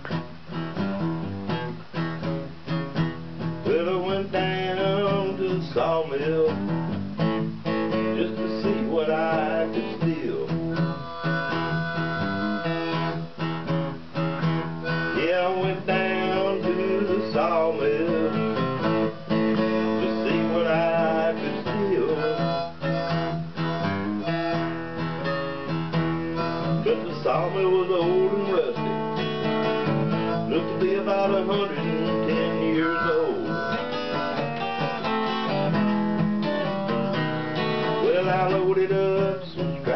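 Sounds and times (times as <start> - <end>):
acoustic guitar blues: 0.0 - 39.9
man singing: 3.6 - 13.2, 14.9 - 24.7, 25.9 - 35.4, 37.5 - 39.9.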